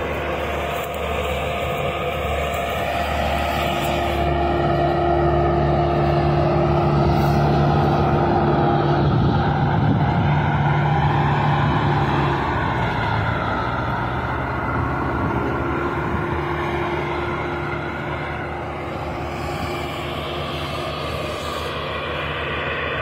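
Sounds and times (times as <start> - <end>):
tractor engines droning: 0.0 - 23.0.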